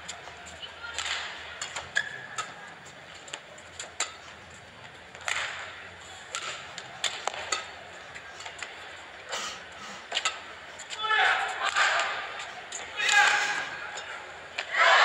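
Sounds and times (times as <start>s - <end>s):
rackets striking shuttlecock: 0.9s - 4.4s, 5.1s - 8.8s
shoes squeaking on court: 1.8s - 4.4s.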